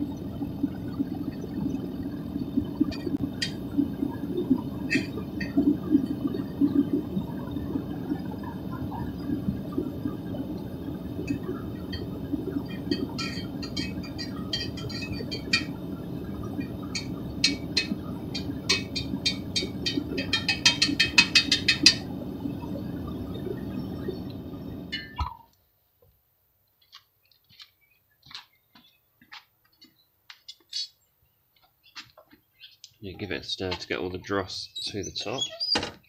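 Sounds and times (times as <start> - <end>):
propane burner rushing: 0.0 - 25.4.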